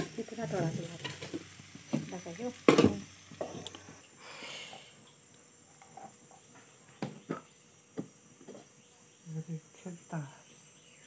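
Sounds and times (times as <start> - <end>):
frying pan sizzle: 0.0 - 6.3.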